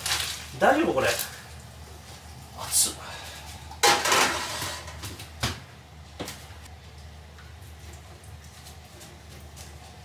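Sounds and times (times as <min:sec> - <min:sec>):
dishware clattering: 0:03.8 - 0:05.0.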